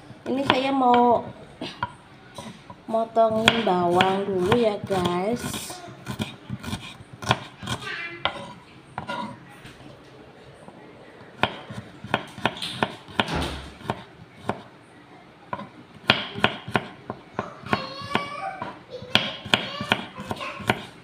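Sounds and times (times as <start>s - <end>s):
knife chopping on wooden board: 3.3s - 9.3s, 11.4s - 14.6s, 15.5s - 20.9s.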